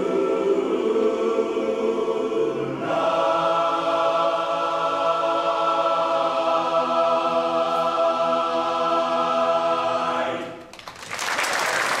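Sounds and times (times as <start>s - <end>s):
men's chorus singing a chord: 0.0s - 10.6s
applause: 10.6s - 12.0s.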